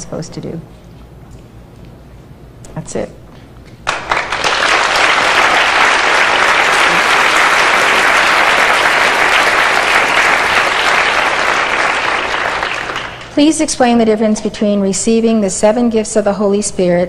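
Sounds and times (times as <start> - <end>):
audience applauding: 3.8 - 13.3.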